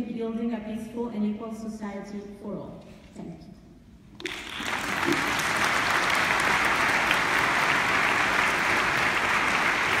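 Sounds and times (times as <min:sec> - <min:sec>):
audience applauding: 0:04.2 - 0:10.0.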